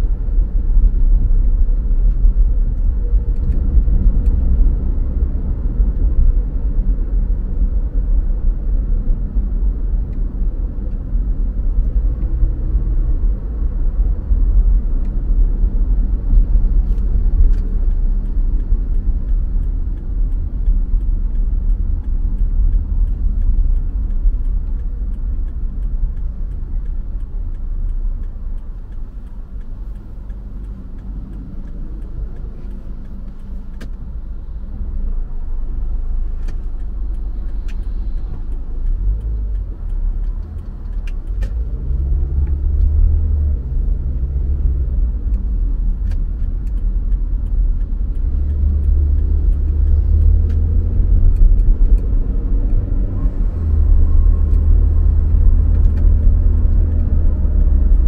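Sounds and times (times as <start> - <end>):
car engine and tyres rumbling: 0.0 - 58.0
faint clicks: 35.7 - 43.1.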